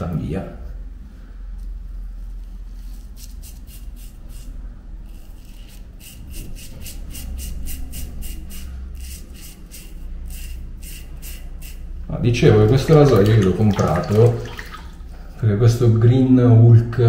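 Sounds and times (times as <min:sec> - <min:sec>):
razor scraping beard stubble: 0:02.7 - 0:12.0.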